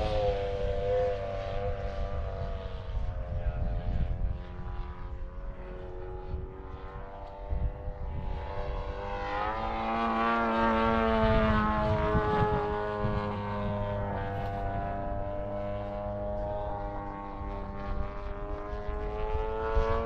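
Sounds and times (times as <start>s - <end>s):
model airplane flying past: 0.0s - 20.0s.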